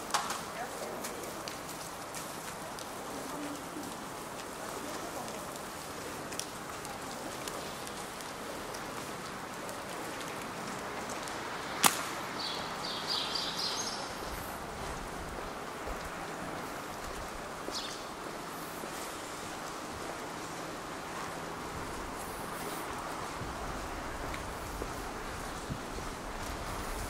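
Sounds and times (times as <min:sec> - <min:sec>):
traffic on wet asphalt: 0:00.0 - 0:27.0
sharp snap: 0:11.8 - 0:12.2.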